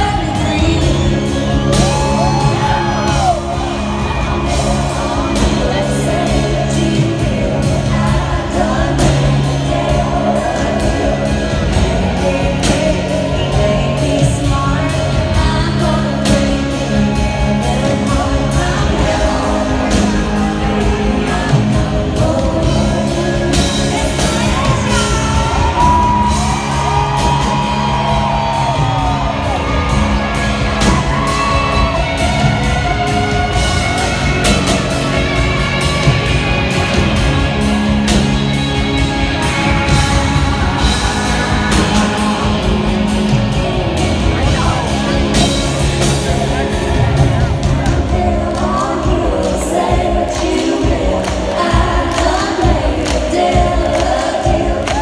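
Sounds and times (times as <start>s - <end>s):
crowd whooping and shouting: 0.0s - 6.6s, 24.2s - 47.9s, 51.8s - 55.0s
women singing: 0.0s - 29.8s, 47.9s - 55.0s
live country band: 0.0s - 55.0s.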